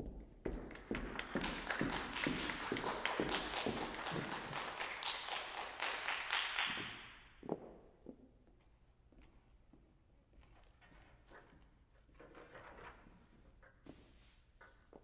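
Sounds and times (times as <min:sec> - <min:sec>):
audience applauding: 0:00.7 - 0:07.1.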